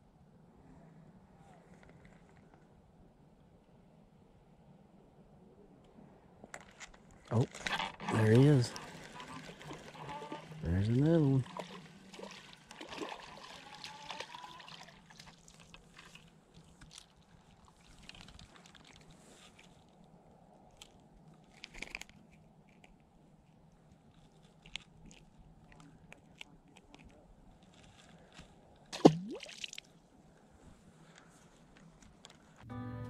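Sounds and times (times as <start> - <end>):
fish plopping into water: 11.5 - 15.0, 28.9 - 29.9
fish handling clicks and rustles: 15.2 - 20.0, 20.7 - 28.9.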